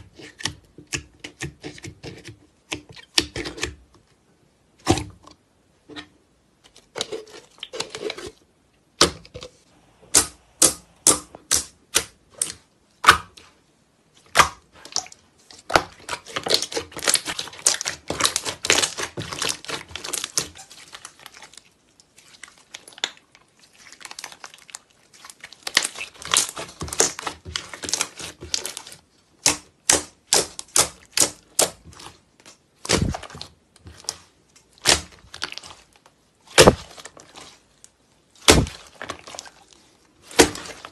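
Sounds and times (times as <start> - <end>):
dense slime crackling: 14.3 - 40.9.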